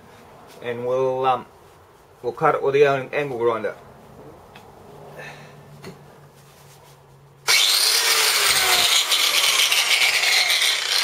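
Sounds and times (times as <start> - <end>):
angle grinder running: 7.5 - 11.0.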